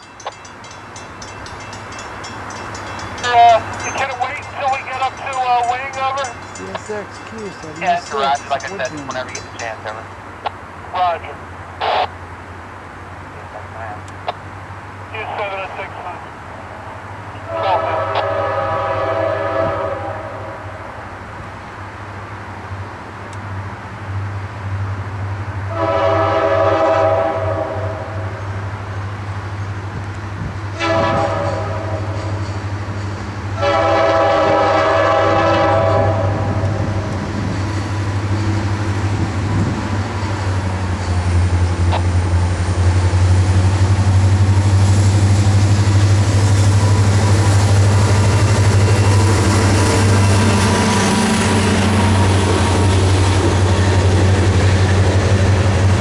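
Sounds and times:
diesel locomotive engine: 0.0 - 56.0
locomotive air horn blasts: 17.4 - 20.8, 25.7 - 28.3, 30.8 - 32.4, 33.6 - 36.7.

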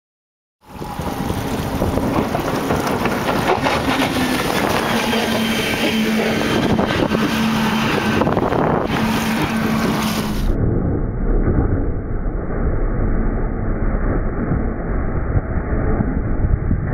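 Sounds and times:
rushing water: 0.6 - 10.6
motorboat engine hum: 0.6 - 16.9
wind on microphone: 0.6 - 16.9.

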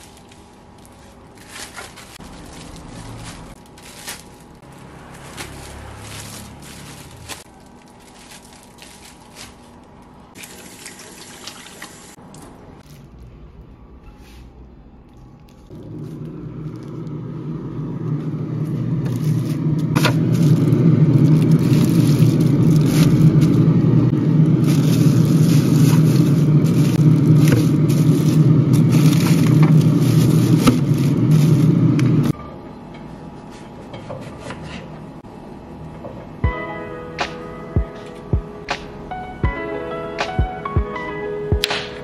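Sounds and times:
loud steady rumble: 0.0 - 7.9, 15.7 - 32.4
plastic bag crackling: 0.0 - 11.0, 15.5 - 17.2, 19.0 - 32.4.

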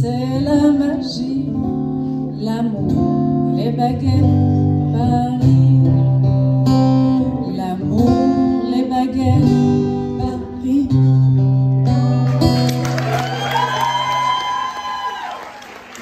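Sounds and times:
acoustic guitar strumming: 0.0 - 13.0
applause: 12.2 - 16.0.

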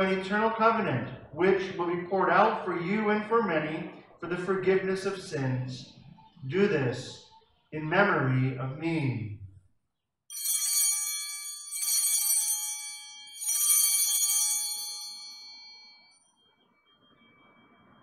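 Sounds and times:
altar bells jingling: 10.3 - 16.2.

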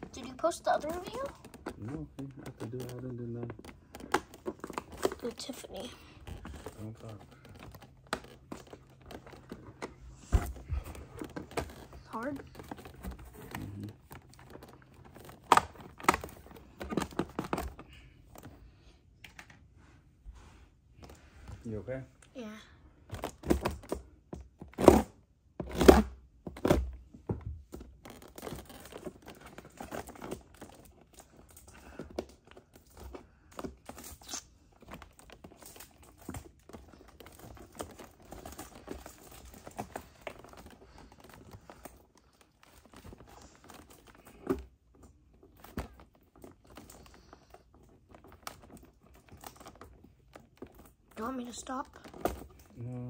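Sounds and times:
packaging crinkling and tearing: 27.7 - 53.0.

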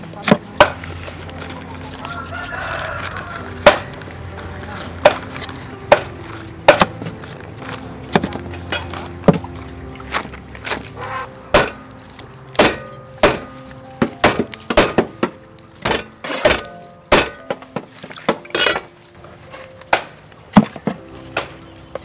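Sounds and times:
cleaver chopping meat on wood: 3.0 - 4.0, 5.0 - 7.2, 11.5 - 11.9, 12.5 - 18.5.

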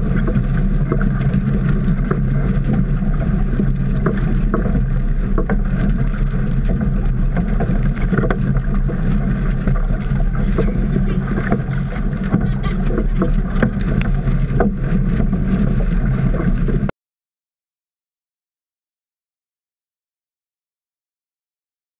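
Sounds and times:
water slopping in boat: 0.0 - 16.9
water splashing against hull: 0.0 - 16.9
wind buffeting camera: 0.0 - 16.9.

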